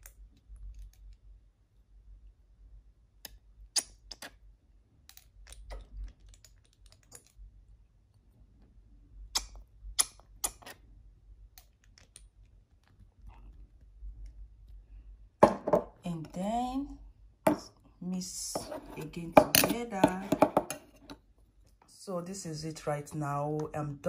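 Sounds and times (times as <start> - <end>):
metal spatula tapping steel bowl: 19.4 - 20.8.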